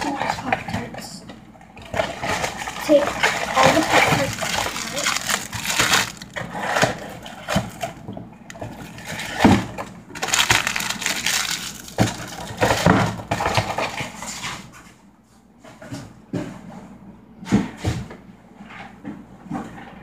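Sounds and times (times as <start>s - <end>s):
foil wrapper crinkling: 2.0s - 12.9s.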